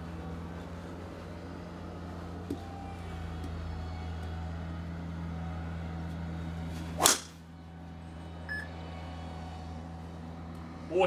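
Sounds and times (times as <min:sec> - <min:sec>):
golf club whooshing: 0:06.8 - 0:07.4
golf ball struck crack: 0:07.0 - 0:07.4.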